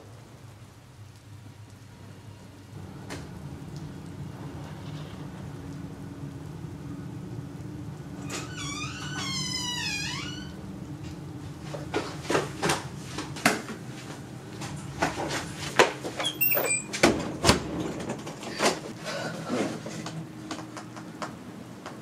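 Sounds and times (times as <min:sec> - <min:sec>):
door creaking with a squeal: 0:08.2 - 0:10.6, 0:16.2 - 0:17.0.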